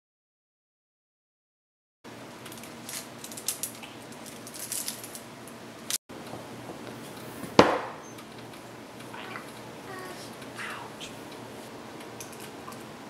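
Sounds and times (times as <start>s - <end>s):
sharp loud knock: 7.6s - 8.0s.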